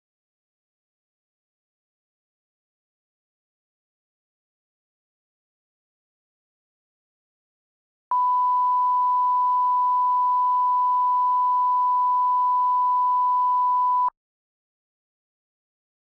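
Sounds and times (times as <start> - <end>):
pure test tone beep: 8.1 - 14.1.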